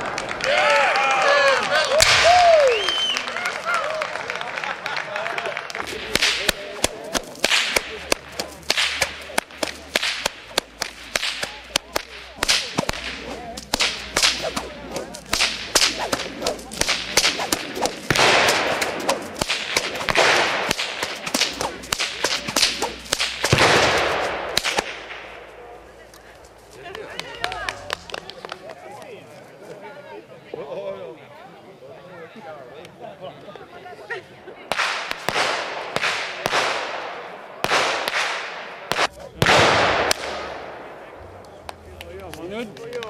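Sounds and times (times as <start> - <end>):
whips cracking: 5.8 - 25.2, 34.8 - 40.6.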